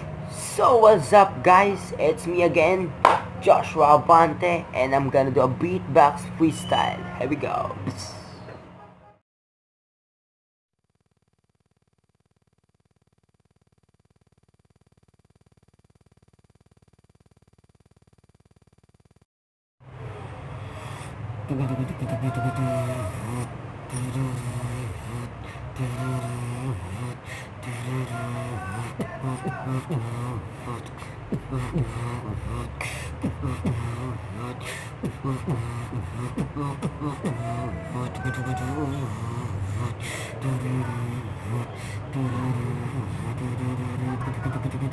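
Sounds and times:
faint rapid pulsing buzz: 10.9 - 19.3, 21.0 - 44.9
person beatboxing: 20.8 - 44.9.

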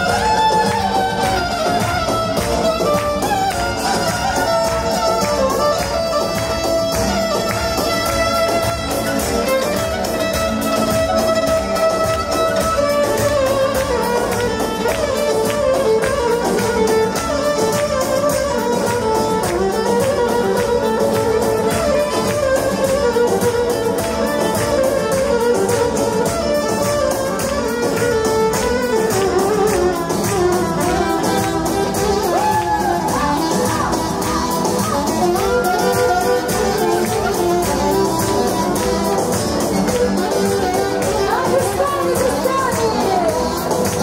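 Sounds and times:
saxophone: 0.0 - 44.0
steady beat: 0.0 - 44.0
violin: 0.0 - 44.0.

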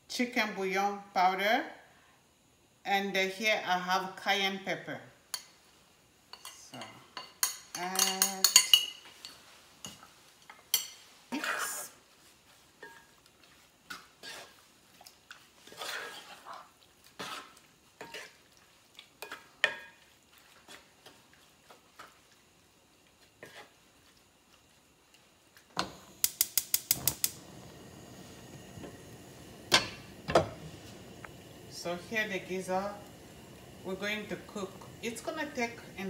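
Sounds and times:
steady low hiss: 0.0 - 36.0
wooden spoon scraping a pot: 12.5 - 18.5, 19.1 - 22.4, 23.2 - 24.7.

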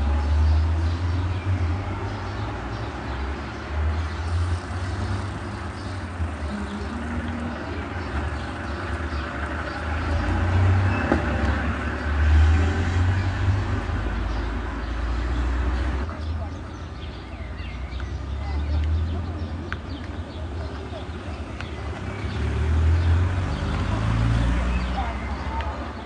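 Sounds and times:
street ambience rumble: 0.0 - 26.0.

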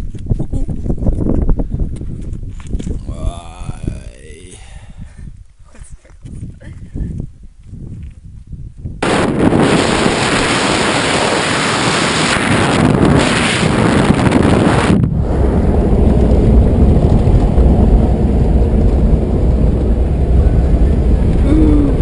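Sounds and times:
wind rushing over microphone: 0.0 - 22.0
tyre and road noise: 14.9 - 22.0
engine rumble: 15.1 - 22.0.

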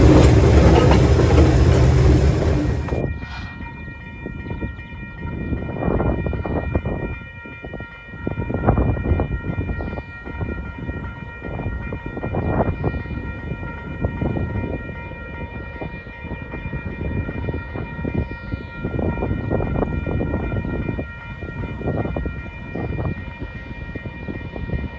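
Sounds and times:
distant locomotives approaching: 0.0 - 6.6
wind on microphone: 0.0 - 24.9.

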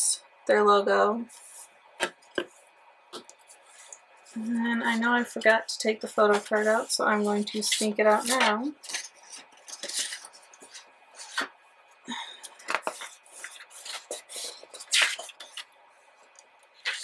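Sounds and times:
paper and board rustling: 3.2 - 11.5, 12.4 - 15.7, 16.7 - 17.0.

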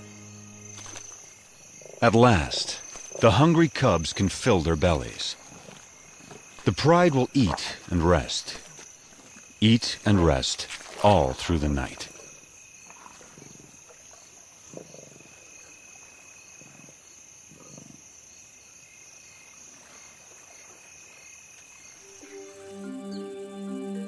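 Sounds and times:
crickets chirping: 0.0 - 23.8
lions growling: 14.7 - 15.4.

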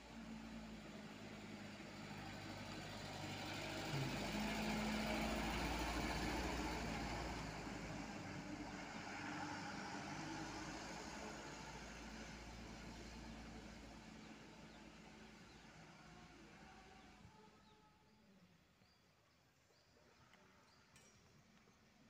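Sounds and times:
diesel truck driving by: 0.0 - 17.3.

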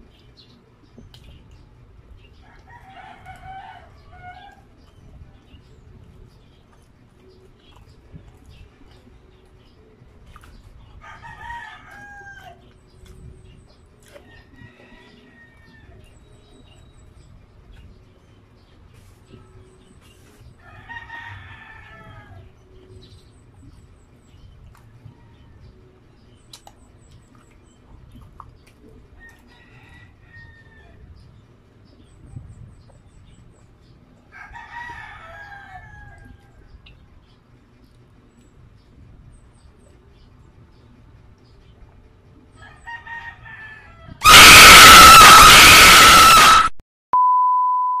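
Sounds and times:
mouth clicks and smacks: 26.5 - 28.8
harsh loud shriek: 44.2 - 46.8
test tone beep: 47.2 - 48.0.

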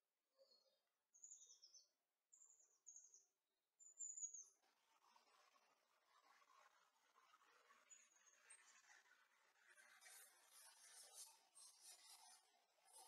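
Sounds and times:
small bird singing: 0.4 - 4.6.

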